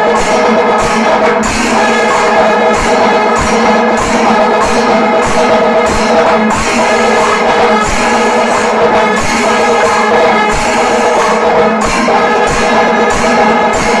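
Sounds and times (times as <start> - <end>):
cymbals: 0.0 - 14.0
drums beating: 0.0 - 14.0
horns sounding held notes: 0.0 - 14.0.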